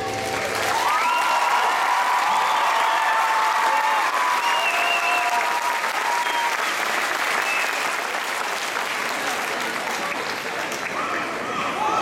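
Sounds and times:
audience applauding: 0:00.0 - 0:11.8
high calls or whistles: 0:04.4 - 0:05.3.

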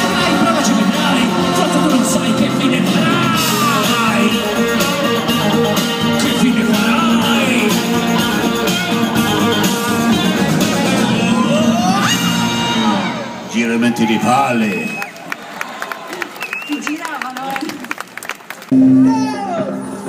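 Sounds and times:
rock band playing live: 0:00.0 - 0:13.5.

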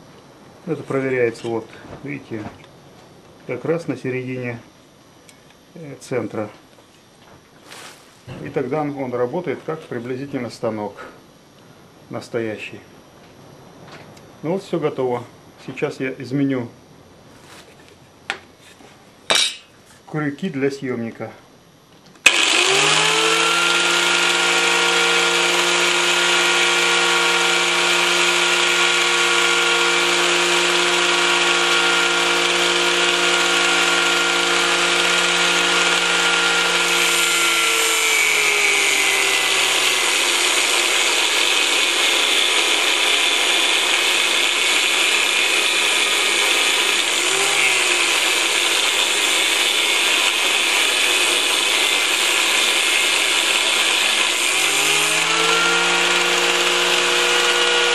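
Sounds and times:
angle grinder whine: 0:22.2 - 0:57.9
grinder grinding metal: 0:22.3 - 0:57.9.

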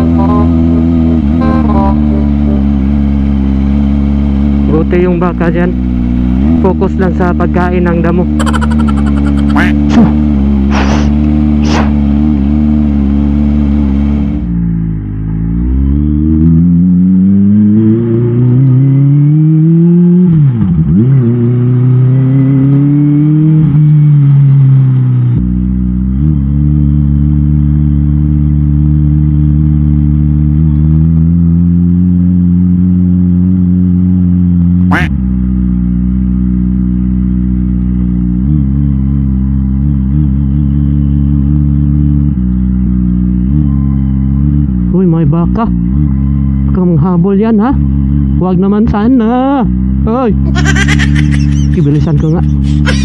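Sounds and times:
motorcycle engine running: 0:00.0 - 0:20.2, 0:20.8 - 0:53.0
throttle blips: 0:08.4 - 0:10.0.

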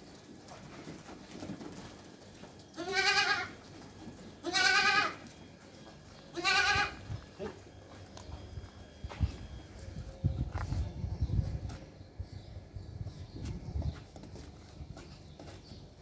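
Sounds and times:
young goat bleating: 0:02.8 - 0:03.6, 0:04.4 - 0:05.3, 0:06.3 - 0:07.1.

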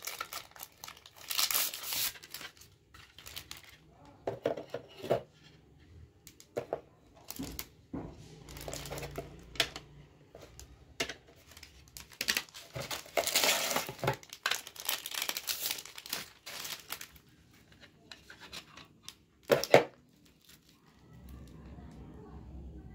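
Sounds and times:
plastic wrapping crinkling: 0:00.0 - 0:04.1, 0:08.4 - 0:09.5, 0:10.4 - 0:21.7.

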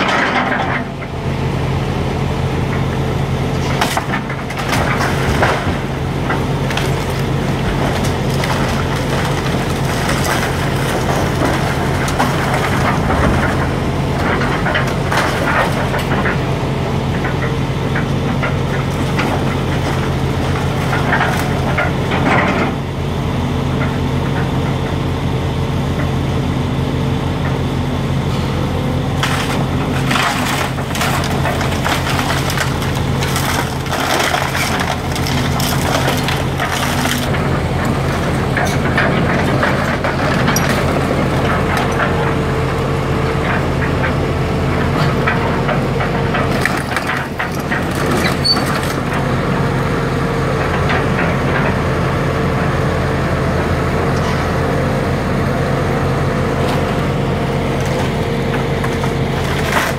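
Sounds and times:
excavator diesel engine running: 0:00.0 - 0:59.9
timber cracking and crunching: 0:03.6 - 0:22.8, 0:29.1 - 0:42.5, 0:57.5 - 0:59.9
falling debris: 0:03.7 - 0:16.4, 0:29.1 - 0:42.1, 0:46.3 - 0:49.1.

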